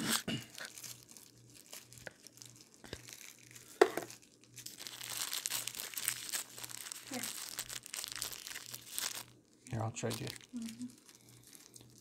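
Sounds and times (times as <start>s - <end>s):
plastic wrapper crinkling: 0.0s - 12.0s.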